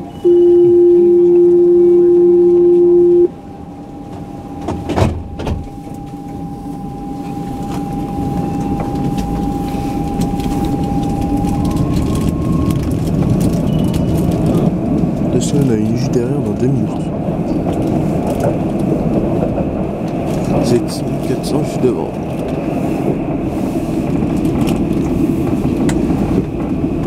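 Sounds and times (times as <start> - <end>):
faint motor whine: 0.0 - 12.7
tram rumble: 0.0 - 27.0
warning buzzer: 0.2 - 3.3
tram doors closing thuds: 3.3 - 15.2.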